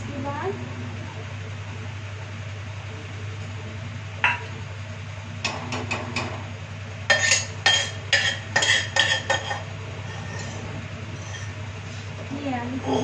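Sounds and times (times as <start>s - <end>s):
steady low hum: 0.0s - 13.0s
metal utensils and pots clanking: 7.1s - 11.6s, 12.7s - 13.0s.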